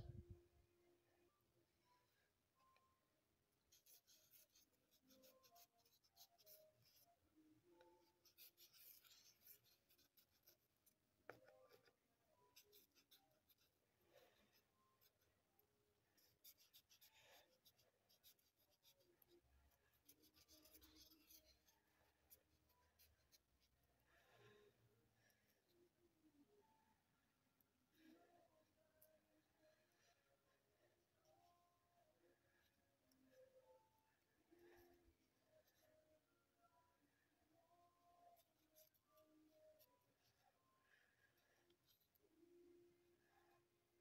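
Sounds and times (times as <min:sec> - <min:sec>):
marker tip rubbing on paper: 0:03.7 - 0:07.1, 0:08.0 - 0:10.7, 0:16.2 - 0:19.3, 0:19.9 - 0:21.7.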